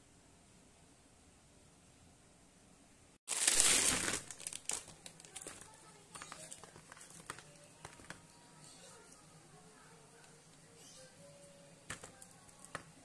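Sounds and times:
loud plastic rustle: 3.3s - 7.4s
plastic sleeves crinkling: 3.3s - 8.2s.

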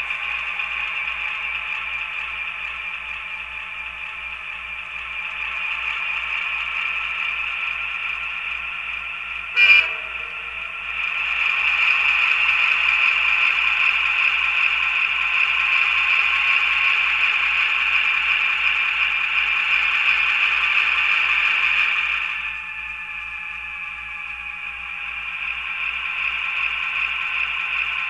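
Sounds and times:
model diesel engine throbbing: 0.0s - 28.0s
short horn toot: 9.6s - 10.8s.

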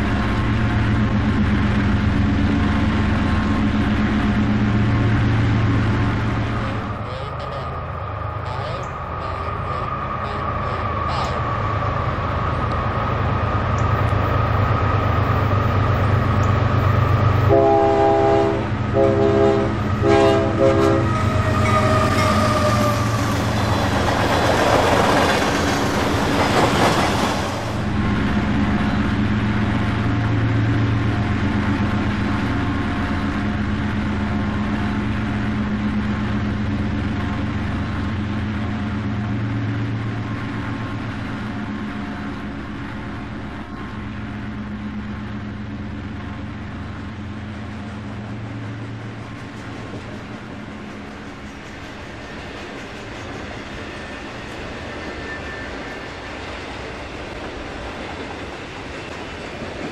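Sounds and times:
diesel engines rumbling: 0.0s - 55.1s
locomotives passing in a rush: 0.0s - 59.9s
rolling freight train rumble: 0.0s - 59.9s
train air horn blasts: 17.5s - 22.9s.

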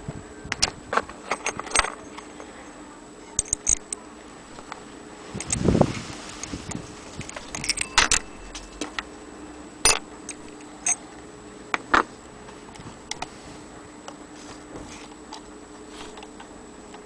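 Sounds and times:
clock movement metallic clicks: 3.4s - 4.0s, 5.4s - 5.6s, 7.2s - 9.0s.

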